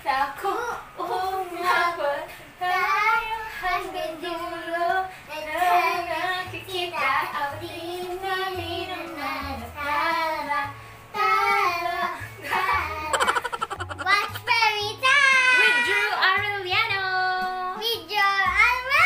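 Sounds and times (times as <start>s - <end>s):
woman singing: 0.0s - 13.1s
girl singing: 0.4s - 16.2s.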